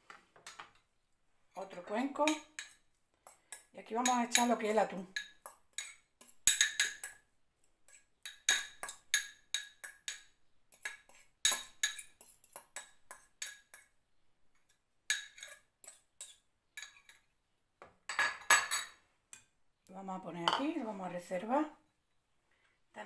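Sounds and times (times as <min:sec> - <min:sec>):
utensil clinking on ceramic bowls: 0:01.6 - 0:07.2, 0:07.9 - 0:13.9, 0:14.6 - 0:17.3, 0:18.1 - 0:19.5, 0:20.4 - 0:20.8.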